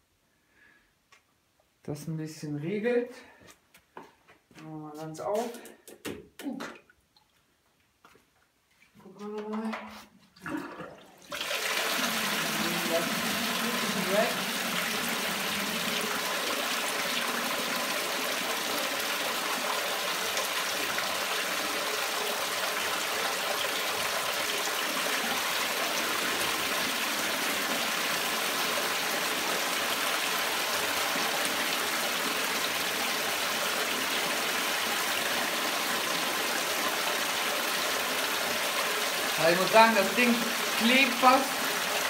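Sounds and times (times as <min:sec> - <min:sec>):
water gushing and splashing: 0:10.4 - 0:42.0.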